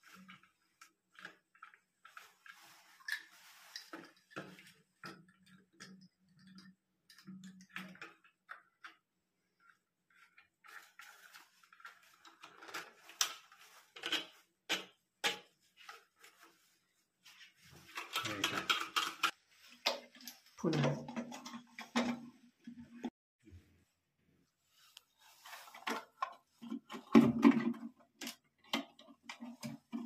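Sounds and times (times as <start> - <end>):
plastic parts clicking and tapping: 3.8 - 16.0, 17.9 - 22.2.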